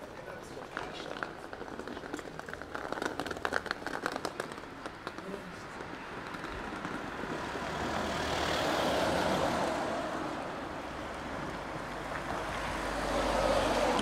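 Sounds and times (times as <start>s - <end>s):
street traffic passing: 0.0s - 14.0s.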